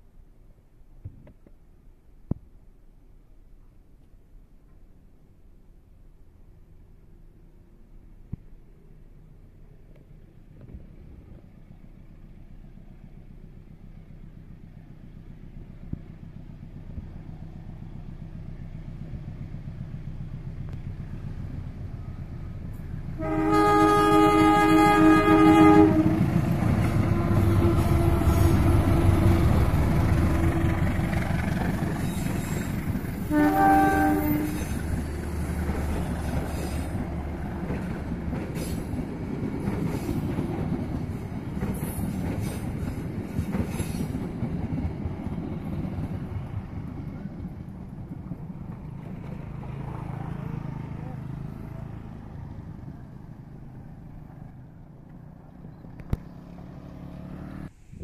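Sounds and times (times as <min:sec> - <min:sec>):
diesel locomotive engine rumble: 0:00.0 - 0:58.0
train wheels on rails: 0:09.8 - 0:56.3
train horn blast: 0:23.2 - 0:30.8, 0:33.2 - 0:34.8.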